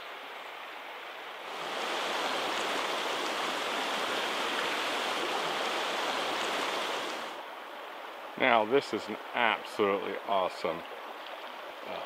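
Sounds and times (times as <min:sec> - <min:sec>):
creek water babbling over riffle: 0:00.1 - 0:12.0.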